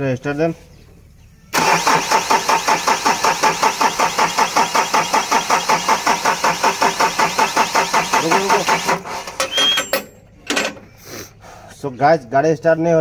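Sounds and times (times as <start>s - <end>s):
diesel engine starter cranking: 1.5s - 11.0s.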